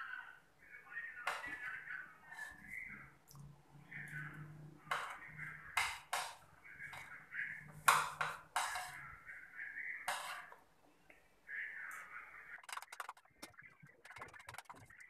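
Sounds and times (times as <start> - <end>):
metal spoon scraping a plate: 7.8 - 9.2, 10.1 - 10.6.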